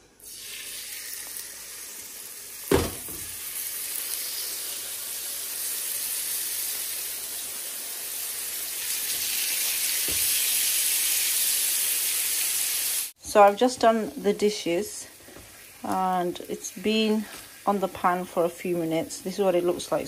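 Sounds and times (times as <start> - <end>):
steaks sizzling in hot oil: 0.2 - 13.2, 14.0 - 20.0
sharp thump: 2.7 - 3.3.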